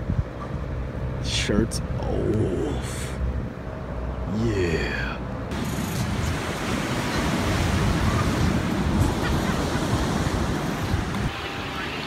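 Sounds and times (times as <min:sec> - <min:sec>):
wind buffeting the microphone: 0:00.0 - 0:00.4, 0:05.5 - 0:11.4
ocean surf on a beach: 0:04.4 - 0:12.0.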